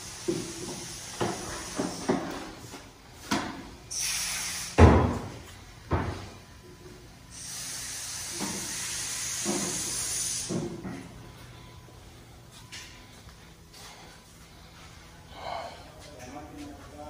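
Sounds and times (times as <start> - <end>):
compressed air hissing: 0.0 - 2.8, 3.9 - 5.2, 7.3 - 10.8
thumps on concrete floor: 4.7 - 6.3.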